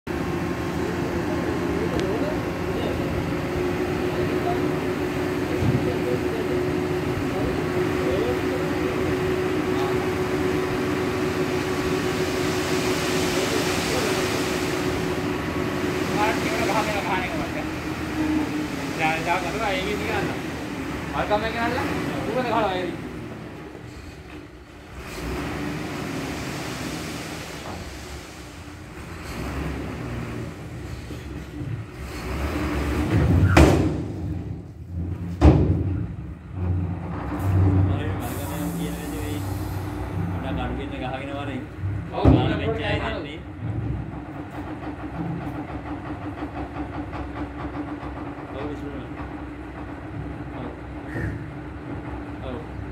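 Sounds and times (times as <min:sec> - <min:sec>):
diesel machinery humming: 0:00.1 - 0:52.9
lorry engine running: 0:00.1 - 0:52.9
dust sliding out with a hiss: 0:12.1 - 0:15.2, 0:25.2 - 0:28.7
loud bang: 0:33.1 - 0:34.6.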